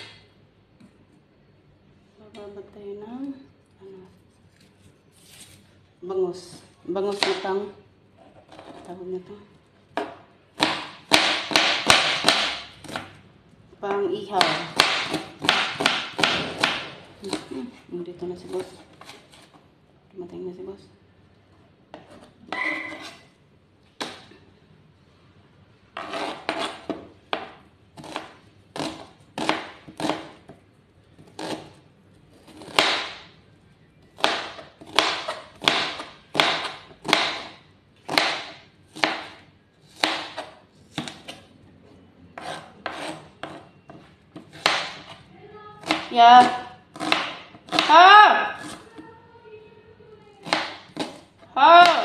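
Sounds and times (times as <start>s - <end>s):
knife chopping on a plastic board: 10.0s - 13.2s, 14.3s - 17.5s, 26.0s - 30.6s, 31.2s - 31.8s, 32.5s - 33.3s, 34.2s - 41.4s, 42.4s - 45.2s, 45.8s - 49.0s, 50.4s - 52.0s.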